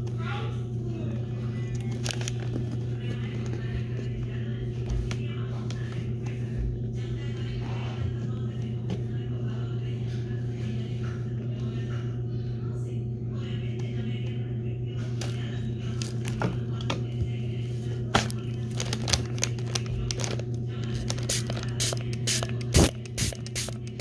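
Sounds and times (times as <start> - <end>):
faint voices: 0.0 - 24.0
steady low hum: 0.0 - 24.0.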